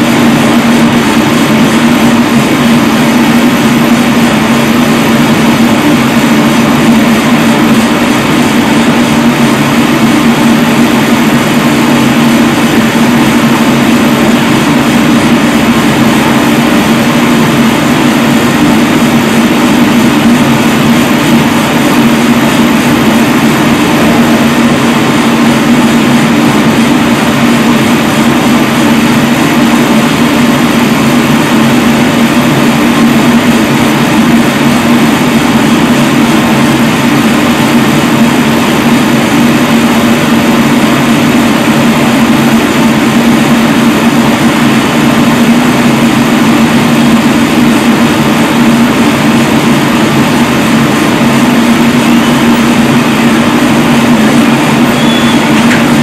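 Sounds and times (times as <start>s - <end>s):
blower rushing air: 0.0s - 56.0s
low hum: 0.0s - 56.0s.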